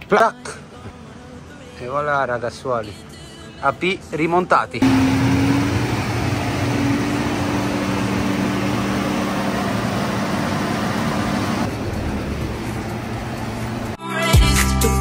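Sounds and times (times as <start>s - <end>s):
music: 0.0s - 4.8s, 14.0s - 15.0s
car running: 4.8s - 14.0s.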